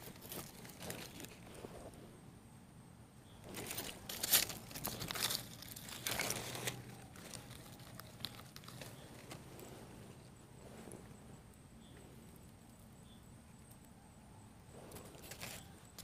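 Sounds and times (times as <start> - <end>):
rustling and crinkling: 0.0 - 2.0, 3.4 - 12.8, 14.8 - 16.0.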